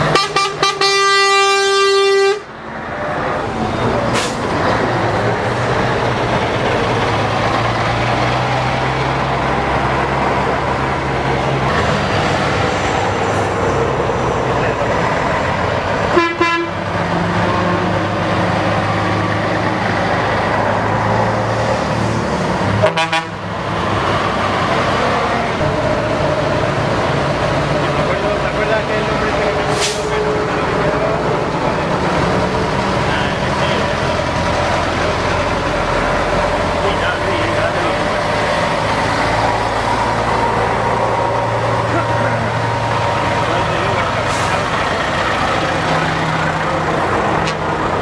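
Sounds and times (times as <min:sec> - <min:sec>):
truck horn blasting: 0:00.0 - 0:02.5, 0:16.1 - 0:16.8, 0:22.8 - 0:23.4
lorries driving past: 0:00.0 - 0:48.0.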